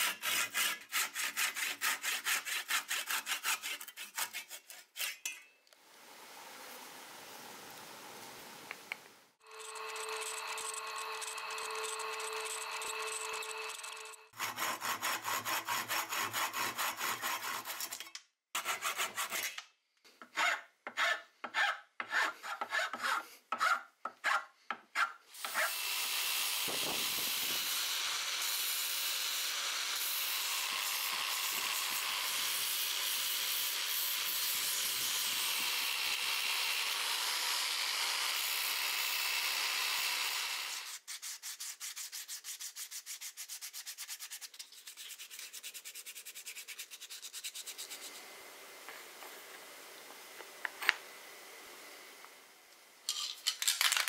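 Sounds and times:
sandpaper rubbing wood by hand: 0:00.0 - 0:05.0, 0:14.4 - 0:17.8, 0:40.8 - 0:48.2
sanding disc grinding wood: 0:00.0 - 0:05.1, 0:09.5 - 0:17.8
hand saw cutting wood: 0:00.0 - 0:05.4, 0:11.0 - 0:19.6, 0:20.2 - 0:48.2.

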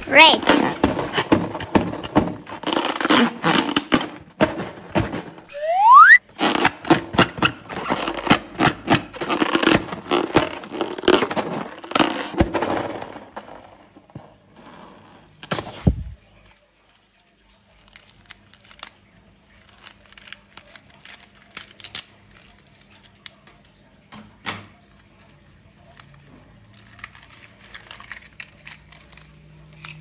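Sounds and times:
short rising squeal: 0:05.5 - 0:06.2.

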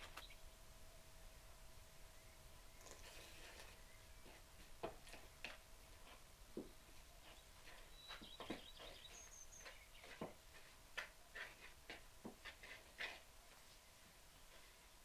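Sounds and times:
hands kneading dough in wooden bowl: 0:02.8 - 0:13.3.

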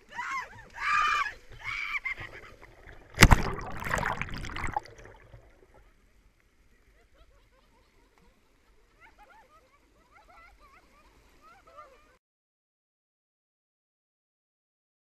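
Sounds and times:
water churning and sloshing: 0:00.6 - 0:05.9
person splashing into water: 0:02.2 - 0:05.6.

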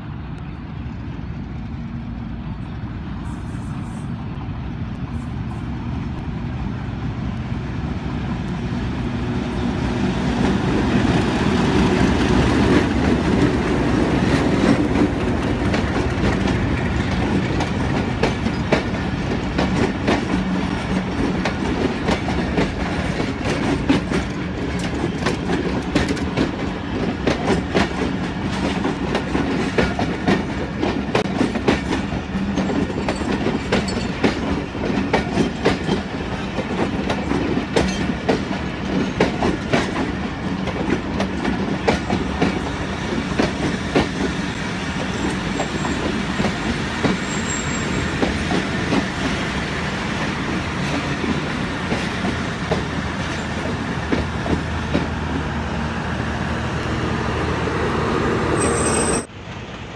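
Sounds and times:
train coaches rumbling past: 0:00.0 - 0:59.9
wheels clacking over rail joints: 0:10.0 - 0:55.4.

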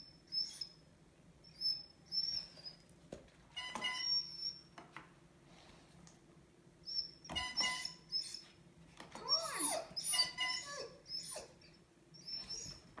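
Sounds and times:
dog crying: 0:07.4 - 0:08.5, 0:09.2 - 0:13.0.

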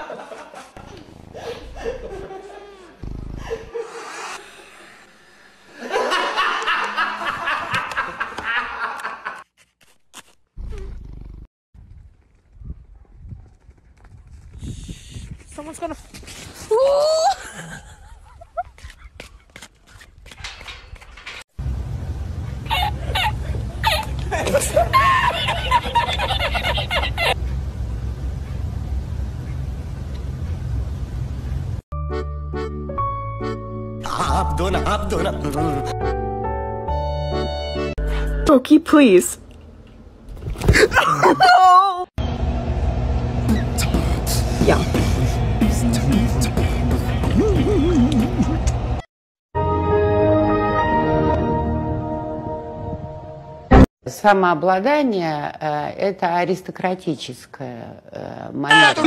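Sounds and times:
man laughing: 0:00.0 - 0:03.9, 0:05.8 - 0:09.4, 0:17.3 - 0:19.2, 0:22.7 - 0:27.4, 0:40.8 - 0:42.0, 0:47.4 - 0:48.7, 0:58.7 - 0:59.0
steady low rumble: 0:42.2 - 0:49.0.

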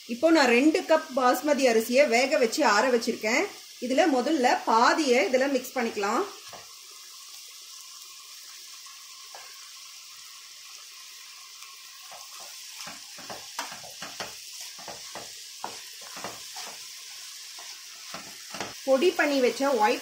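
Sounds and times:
vegetables sizzling in a pan: 0:00.0 - 0:20.0
wooden spatula scraping a pan: 0:12.0 - 0:18.8.

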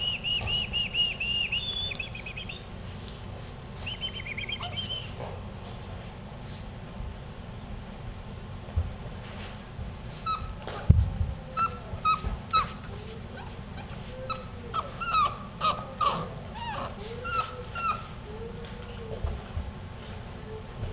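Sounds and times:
puppies yipping and whining: 0:03.8 - 0:05.2, 0:10.1 - 0:10.9, 0:11.5 - 0:19.2.

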